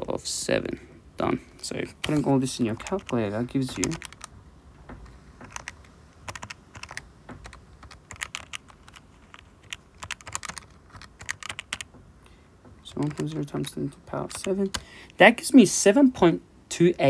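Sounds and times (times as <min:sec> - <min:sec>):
calculator keys clicking: 0:02.0 - 0:04.3, 0:05.4 - 0:12.0, 0:12.8 - 0:14.9.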